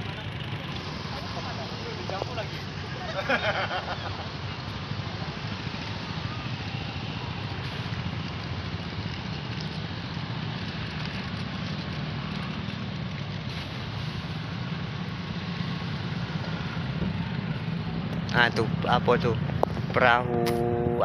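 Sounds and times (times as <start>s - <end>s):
boat engine droning: 13.6s - 21.0s.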